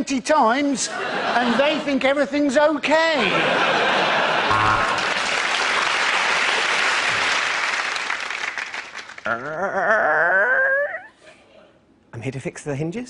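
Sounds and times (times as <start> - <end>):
audience applauding: 4.5 - 9.6.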